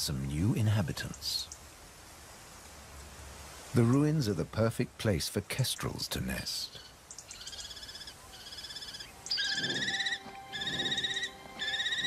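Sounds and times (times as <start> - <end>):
bird chicks begging trills: 6.8 - 12.0.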